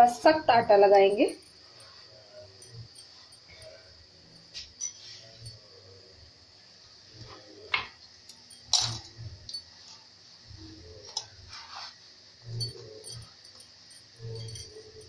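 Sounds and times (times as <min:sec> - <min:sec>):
clinks against steel bowl: 0:12.5 - 0:15.0.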